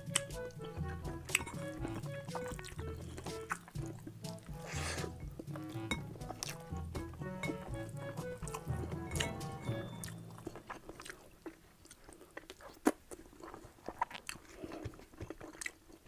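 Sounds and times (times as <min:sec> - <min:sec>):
background music: 0:00.0 - 0:11.0
chewing and mouth smacks: 0:00.0 - 0:16.0.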